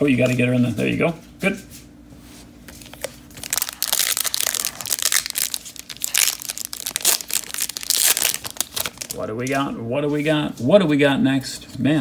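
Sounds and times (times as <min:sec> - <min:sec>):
foil wrapper crinkling and tearing: 0:02.8 - 0:09.6.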